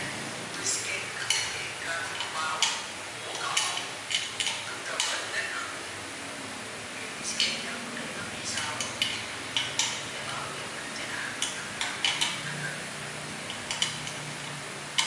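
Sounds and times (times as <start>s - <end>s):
tool and screws clicking on metal: 1.3s - 5.2s, 8.6s - 10.1s, 11.4s - 12.4s, 13.5s - 14.3s.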